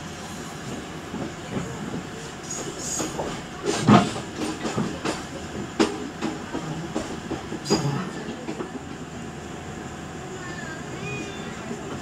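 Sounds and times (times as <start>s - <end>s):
train rumbling: 0.0s - 12.0s
wheels clattering over track joints: 1.2s - 9.0s.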